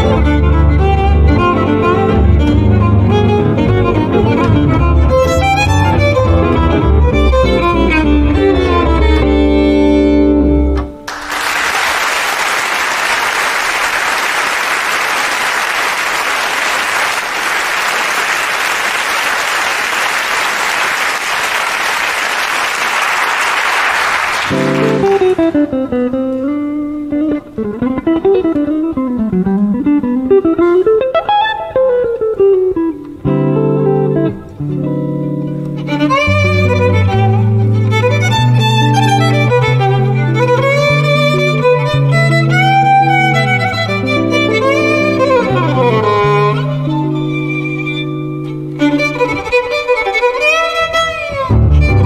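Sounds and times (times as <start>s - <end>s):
violin and bass jazz: 0.0s - 11.0s, 35.4s - 52.0s
solo guitar picking: 0.0s - 11.1s, 24.5s - 52.0s
audience applauding: 11.0s - 25.4s.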